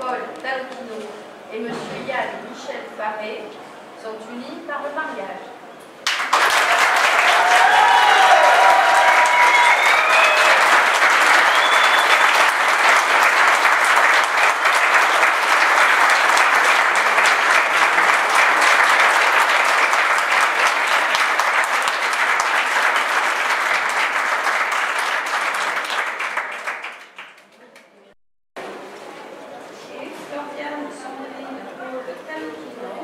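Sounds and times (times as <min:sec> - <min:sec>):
crowd applauding: 0:06.0 - 0:27.9
short calls from crowd: 0:06.7 - 0:20.0.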